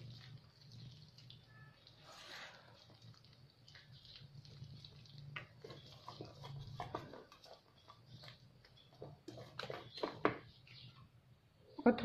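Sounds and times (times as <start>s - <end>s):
whisk stirring batter in steel bowl: 0.0s - 11.0s.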